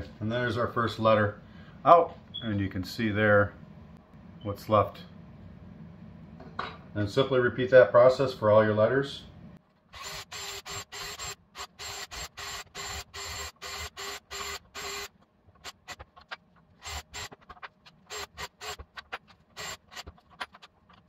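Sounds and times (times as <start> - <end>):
cordless drill bursts: 9.9 - 16.0, 16.8 - 17.5, 18.1 - 19.0, 19.6 - 20.1.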